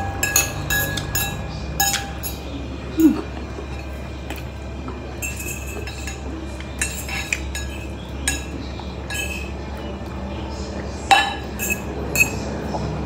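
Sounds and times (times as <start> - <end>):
metal fork clinking against bowl: 0.0 - 2.6, 5.2 - 9.6, 11.1 - 12.8.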